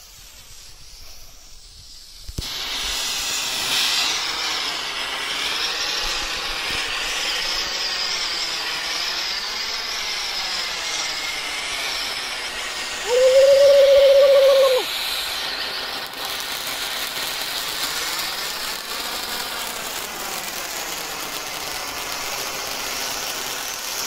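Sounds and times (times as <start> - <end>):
fountain firework hissing: 0.0 - 24.0
firework sharp pop: 2.2 - 4.2.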